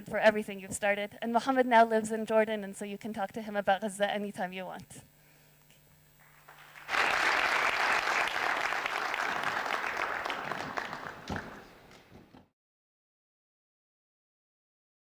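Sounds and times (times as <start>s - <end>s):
audience applauding: 6.2s - 12.2s.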